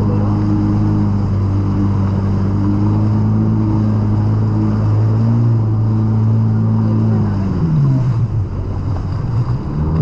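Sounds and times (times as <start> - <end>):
hull and water noise: 0.0 - 10.0
jet ski engine drone: 0.0 - 10.0.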